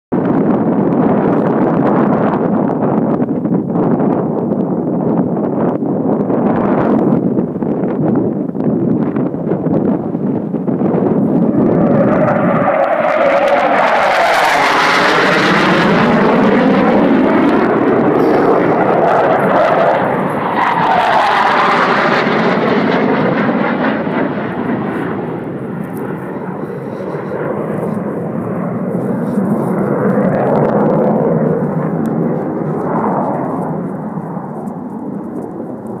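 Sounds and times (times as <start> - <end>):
jet roar passing: 10.6 - 36.0.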